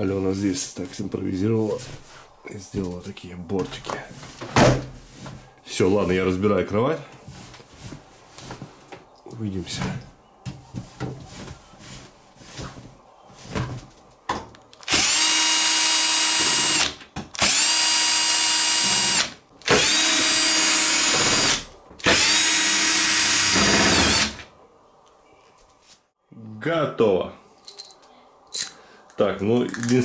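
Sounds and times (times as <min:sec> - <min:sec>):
fabric rustling: 0:07.2 - 0:09.1, 0:10.5 - 0:14.2
cordless drill whining: 0:14.8 - 0:24.5.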